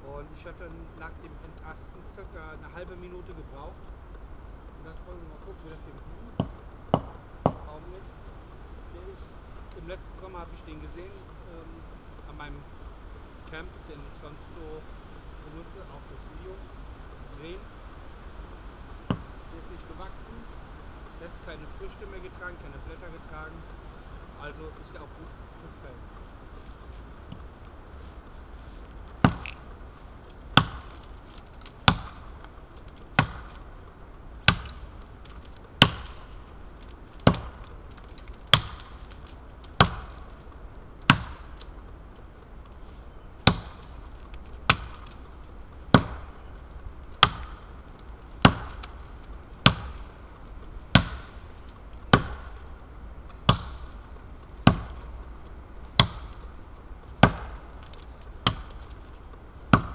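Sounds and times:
axe chopping into tree trunk: 29.2s - 29.6s, 30.6s - 32.3s, 33.0s - 33.6s, 34.4s - 36.4s, 37.2s - 40.3s, 41.1s - 41.6s, 43.4s - 43.9s, 44.7s - 45.2s, 45.9s - 46.3s, 47.2s - 47.7s, 48.4s - 49.0s, 49.6s - 50.1s, 50.9s - 51.4s, 52.1s - 52.6s, 53.4s - 54.0s, 54.6s - 55.1s, 56.0s - 56.4s, 57.2s - 59.0s.

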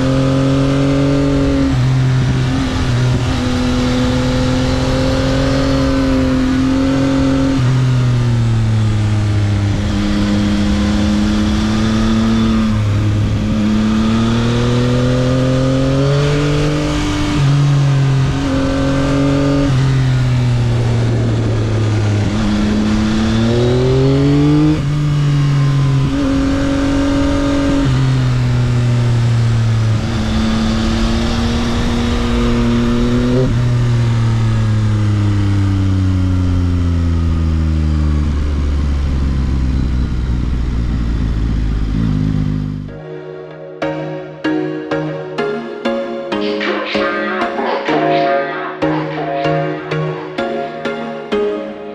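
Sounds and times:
motorcycle engine under hard riding: 0.0s - 43.0s.

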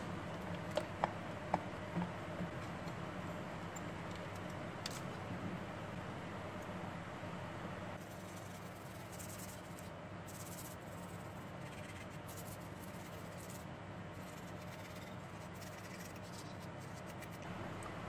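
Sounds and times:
steady low hum: 0.0s - 18.0s
brush scrubbing circuit board: 8.0s - 13.6s, 14.2s - 17.4s.

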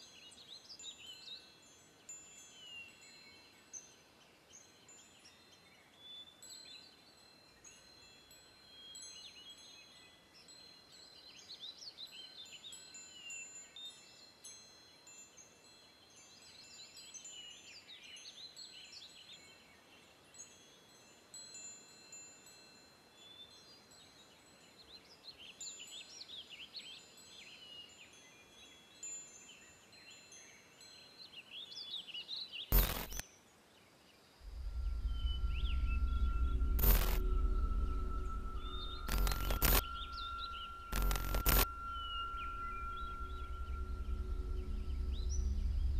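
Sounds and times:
faint songbirds warbling: 0.0s - 14.3s, 23.2s - 45.9s
soft high chime-like tones: 0.0s - 33.2s, 34.4s - 45.9s
loud rush of noise: 32.8s - 33.2s, 34.4s - 45.9s.

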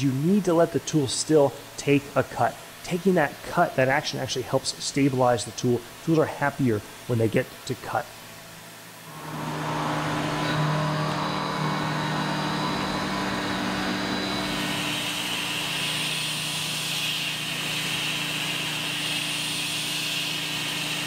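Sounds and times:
mill spindle running: 8.6s - 21.0s
high-pitched cutting hiss: 10.6s - 21.0s.

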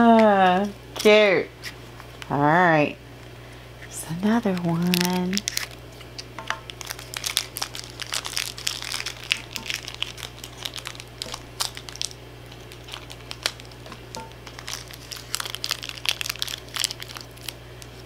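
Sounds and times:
plastic wrapper crinkling: 4.2s - 18.0s.

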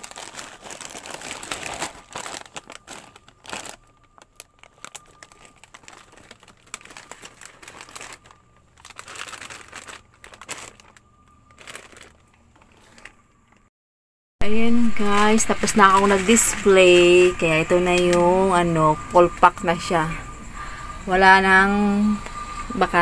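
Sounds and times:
plastic bags crinkling: 0.0s - 13.6s, 15.2s - 18.3s.

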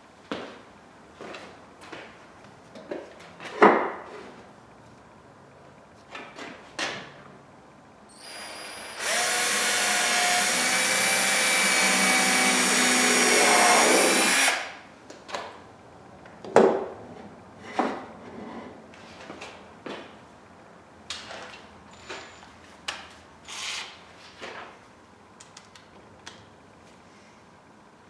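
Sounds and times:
cordless drill boring into wood: 8.2s - 14.7s.

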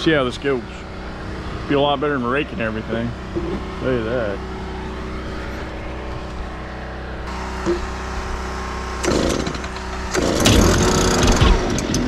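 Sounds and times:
small engine running: 0.0s - 12.0s
loud burst of noise: 3.1s - 12.0s.

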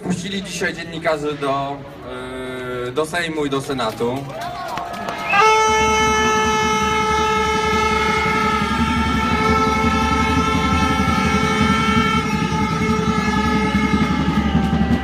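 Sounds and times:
horn long steady note: 5.1s - 15.0s
low rumble: 5.6s - 15.0s.

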